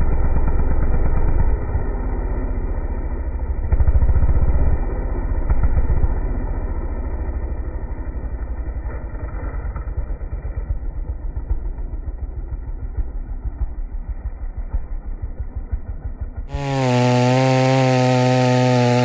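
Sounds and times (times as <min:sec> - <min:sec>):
chainsaw engine running: 0:00.0 - 0:19.0
chain cutting through log: 0:16.4 - 0:19.0.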